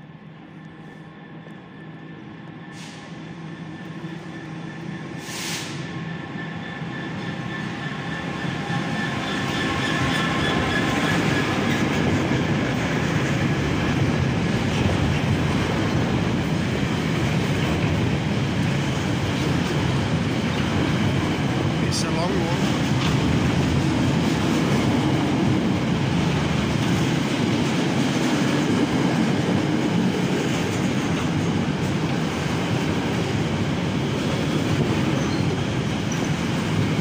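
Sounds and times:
diesel locomotive engine passing: 0.2 - 37.0
short hiss: 5.2 - 5.8.

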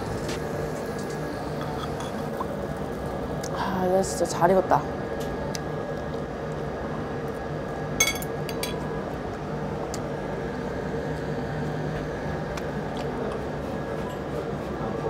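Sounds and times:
steady low hum: 0.0 - 15.0
metal utensil clinking on dish: 8.0 - 8.8.

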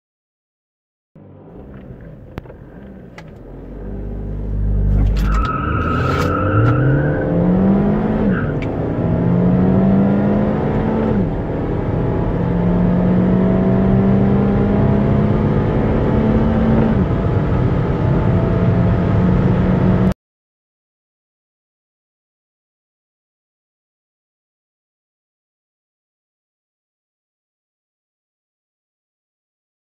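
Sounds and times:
car engine accelerating: 1.2 - 20.2.

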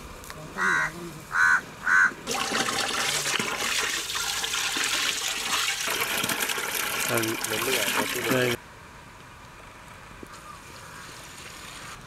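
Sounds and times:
water from hose pouring into pot: 2.3 - 8.6.

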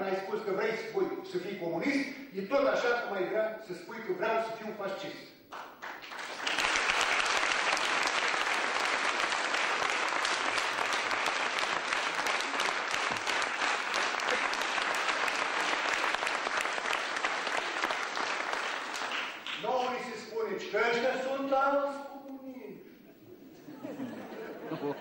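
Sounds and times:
audience applauding: 5.5 - 20.1.

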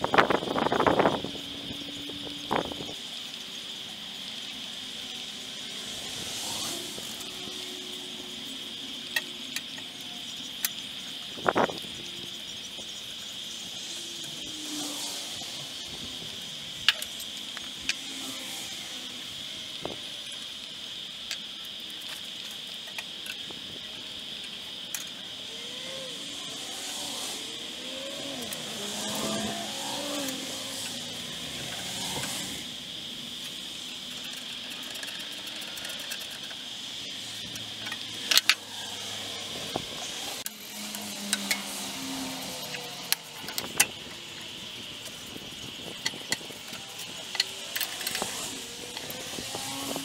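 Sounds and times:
tools and metal parts clicking: 20.2 - 23.5, 33.4 - 39.0, 39.6 - 45.2, 45.9 - 50.0.

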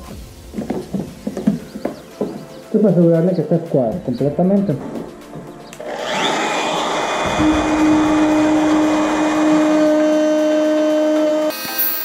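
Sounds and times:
router bit cutting wood: 5.8 - 12.0
trim router whining: 5.8 - 12.0.

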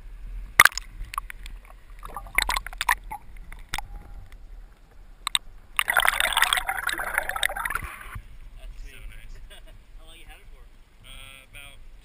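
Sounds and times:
muffled underwater rumble: 0.0 - 9.7
camera housing knocks underwater: 0.6 - 1.3.

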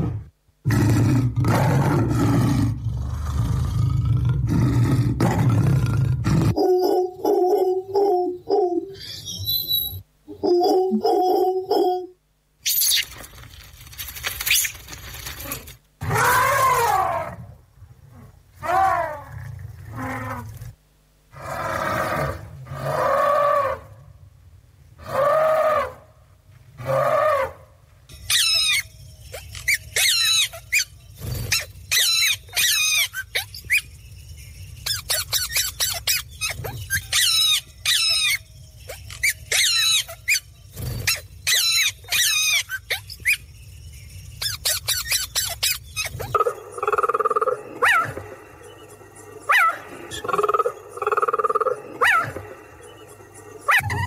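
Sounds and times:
high bird chirps and squawks: 8.9 - 10.0, 12.6 - 13.2, 28.2 - 34.0, 34.8 - 43.5, 44.3 - 48.8
long animal calls: 46.0 - 48.5, 49.4 - 52.5.

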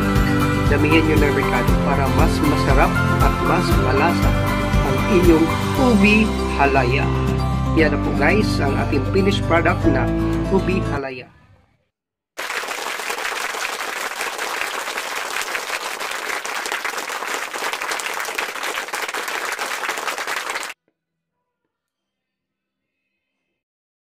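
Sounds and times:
applause: 12.4 - 20.8.

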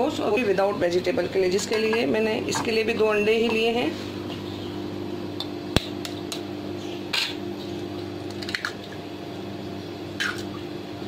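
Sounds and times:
low electric hum: 0.0 - 11.0.

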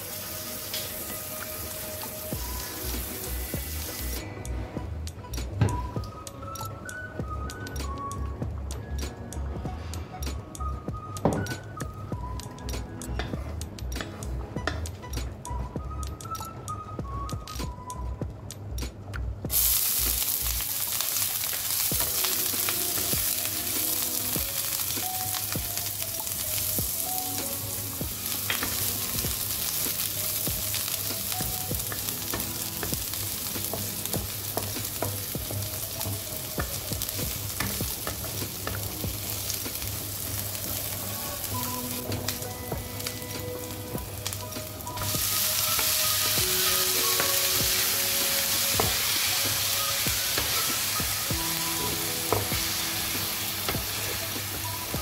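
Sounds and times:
onion sizzling in hot oil: 0.0 - 4.4, 19.5 - 55.0.

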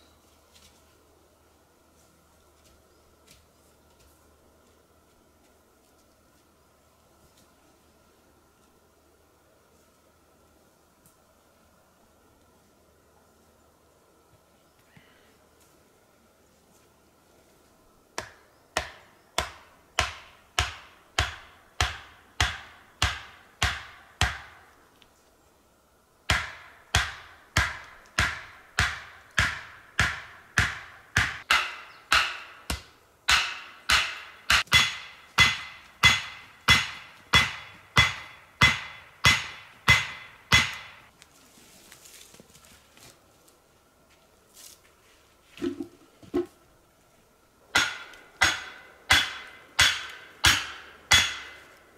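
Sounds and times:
stake being hammered into ground: 18.2 - 24.6, 26.3 - 41.0, 47.8 - 51.6.

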